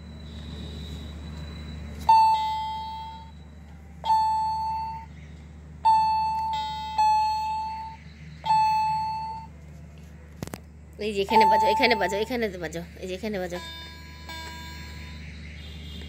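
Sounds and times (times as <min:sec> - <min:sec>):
toy keyboard electronic beeping notes: 0:00.4 - 0:05.1, 0:05.8 - 0:09.5, 0:11.2 - 0:12.5, 0:13.1 - 0:15.7.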